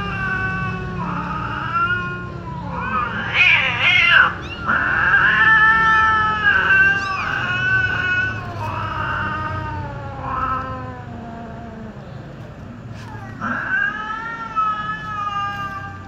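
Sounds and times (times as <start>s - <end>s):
kittens mewing: 0.0s - 16.0s
kitten squalling harshly: 2.6s - 11.2s, 13.1s - 16.0s.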